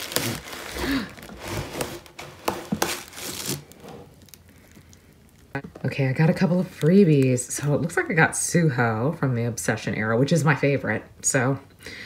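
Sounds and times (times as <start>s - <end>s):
cardboard and plastic rustling: 0.0s - 7.5s.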